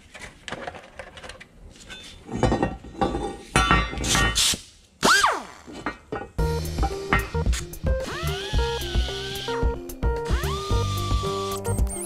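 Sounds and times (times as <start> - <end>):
die grinder whirring: 8.0 - 11.9.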